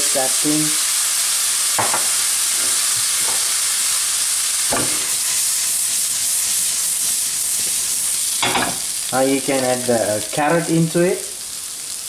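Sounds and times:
prawns sizzling in a wok: 0.0 - 12.0
wok scrapes: 4.8 - 8.9.

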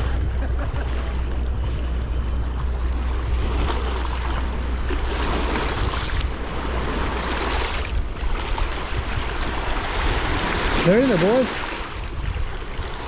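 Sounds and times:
wind on microphone: 0.0 - 13.0
river water washing against rocks: 2.8 - 13.0.

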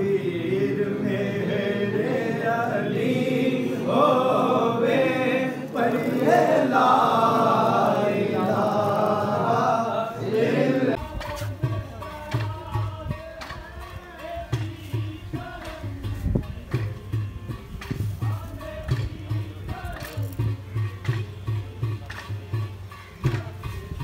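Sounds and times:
men chanting together: 0.0 - 16.3.

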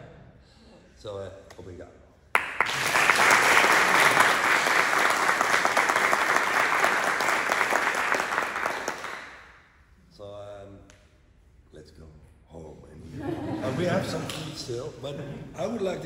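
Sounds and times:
people applauding: 2.3 - 9.6.

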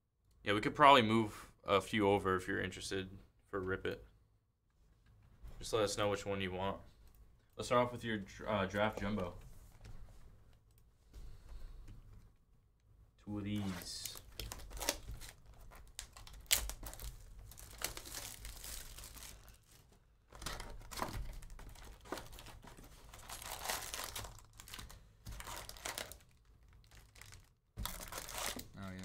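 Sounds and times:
plastic wrapping crinkling: 13.6 - 29.0.

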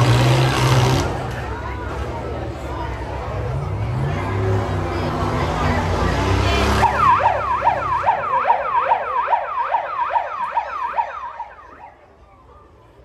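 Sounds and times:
car engines running: 0.0 - 13.0
electronic siren yelping: 6.8 - 11.9.

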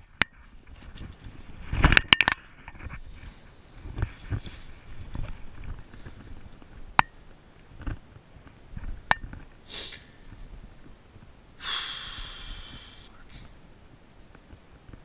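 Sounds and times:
soft rustling: 2.8 - 6.9
hiss: 9.7 - 10.1, 11.6 - 13.2.

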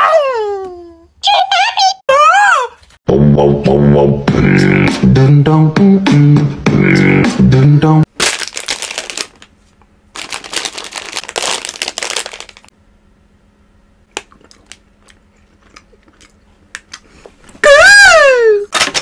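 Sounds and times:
plastic candy bag crinkling: 8.1 - 12.7.

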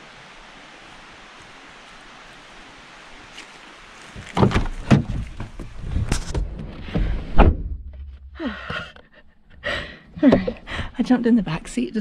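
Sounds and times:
knocks and thumps of climbing: 4.1 - 9.1, 10.2 - 10.8
car door opening and slamming: 6.3 - 8.0
breathy gasps: 8.4 - 11.0.

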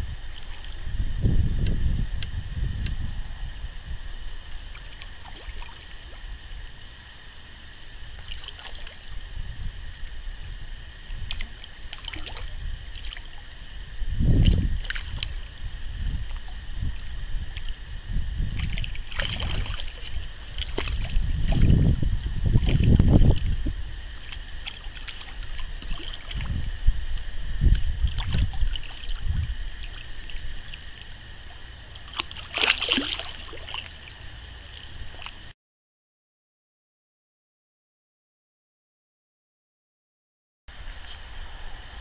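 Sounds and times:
low rumbling: 0.0 - 5.3, 9.0 - 35.5
fish splashing at water surface: 4.6 - 6.5, 8.0 - 9.2, 11.0 - 13.5, 18.5 - 21.8, 22.4 - 26.7, 27.7 - 35.5.

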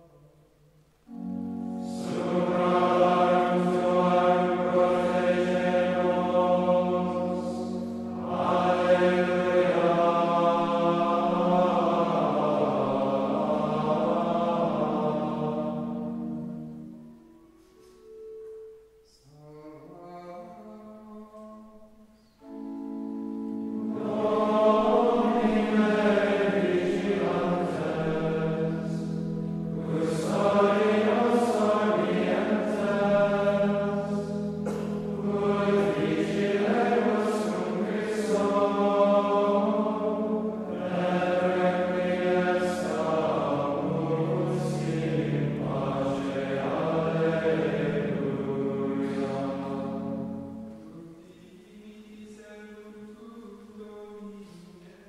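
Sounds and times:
sustained organ chords: 0.0 - 54.1
choir singing plainchant: 1.1 - 18.2, 22.4 - 55.0.

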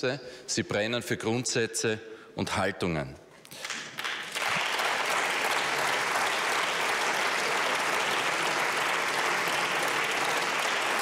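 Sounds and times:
crowd applauding: 3.6 - 11.0.

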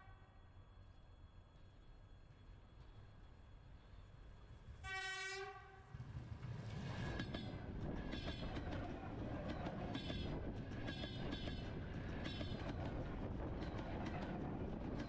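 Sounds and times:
train horn blast: 4.8 - 5.9
train wheels rumbling: 5.8 - 15.0.

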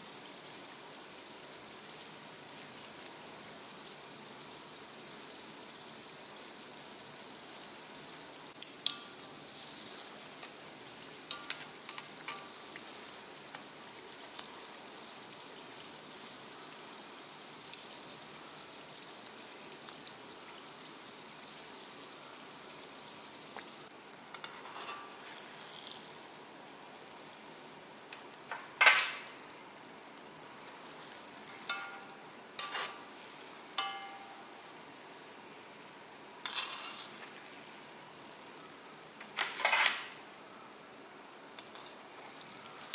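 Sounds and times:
donuts sizzling in hot oil: 0.0 - 42.9
metal tongs clicking on pan: 8.6 - 9.2, 11.3 - 12.9, 24.3 - 25.2, 31.5 - 33.0, 33.8 - 34.6, 36.4 - 37.1.

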